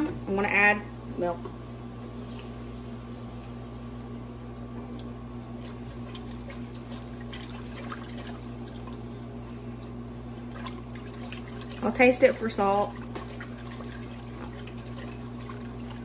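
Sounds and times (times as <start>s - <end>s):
milk pouring into pot: 5.6s - 16.0s.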